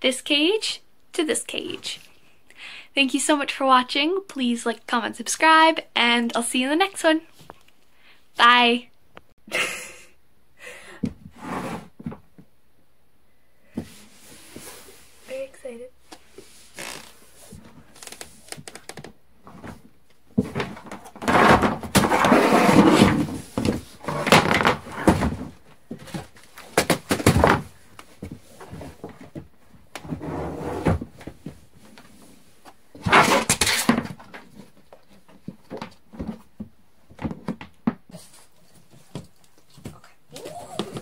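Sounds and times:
knocking and scraping on plastic: 0:18.5 - 0:31.6, 0:33.0 - 0:38.1.

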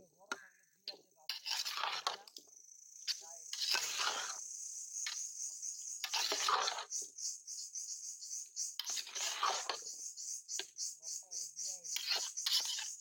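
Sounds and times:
insects trilling: 0:00.0 - 0:13.0
metal spatula scraping a pot: 0:01.3 - 0:02.2, 0:03.5 - 0:04.4, 0:06.0 - 0:07.0, 0:08.8 - 0:09.9, 0:12.0 - 0:13.0.

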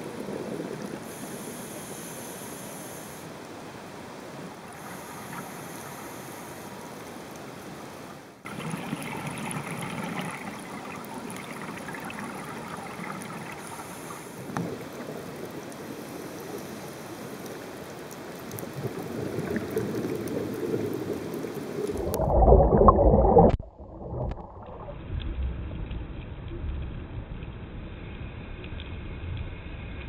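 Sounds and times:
underwater rushing hiss: 0:00.9 - 0:03.3, 0:04.6 - 0:07.2, 0:08.5 - 0:17.7
scuba bubbles rumbling: 0:04.6 - 0:06.6, 0:08.5 - 0:17.0, 0:18.4 - 0:28.0.

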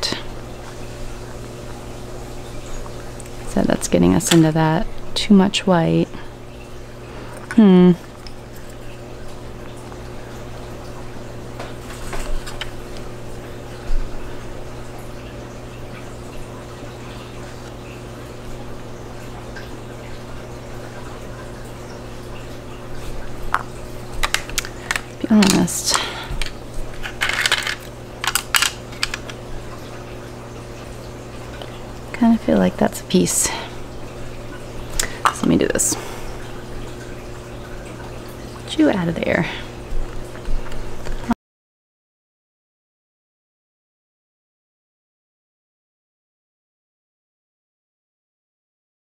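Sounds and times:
low electrical hum: 0:00.0 - 0:41.4
small pieces clicking on hard surface: 0:26.4 - 0:29.4.

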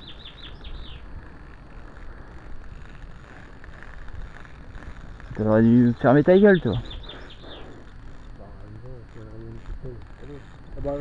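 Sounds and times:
bird chirping: 0:00.0 - 0:01.5, 0:04.8 - 0:09.6
wind rumbling on microphone: 0:00.0 - 0:11.0.

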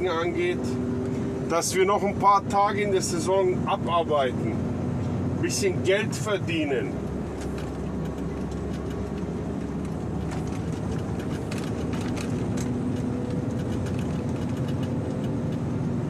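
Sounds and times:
truck engine and road rumble: 0:00.0 - 0:16.0.

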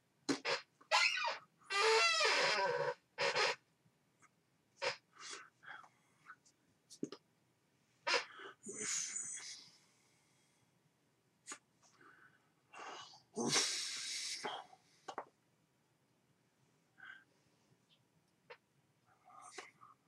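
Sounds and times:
man's breathy puffs and hisses: 0:12.8 - 0:14.7.

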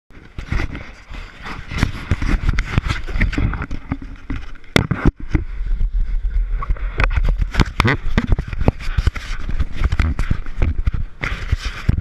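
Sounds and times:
low wind rumble: 0:00.1 - 0:12.0
knocks and rubbing on camera: 0:01.5 - 0:05.5, 0:06.6 - 0:12.0.

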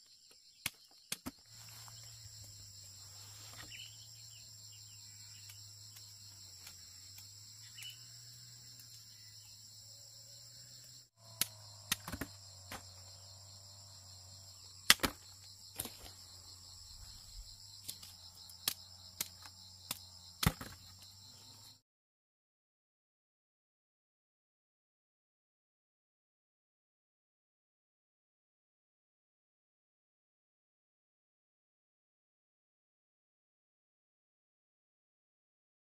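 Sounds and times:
insects chirring: 0:00.0 - 0:21.8.

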